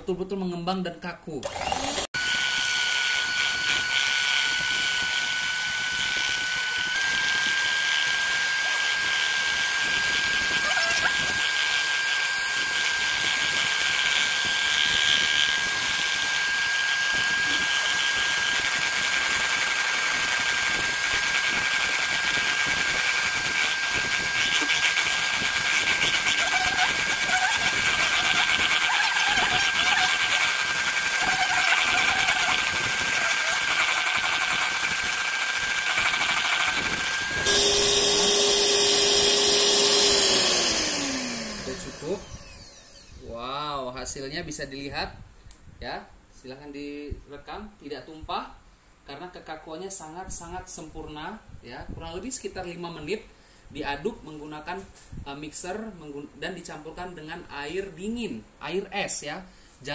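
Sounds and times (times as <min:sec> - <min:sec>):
electric hand mixer whining: 0:01.4 - 0:43.3.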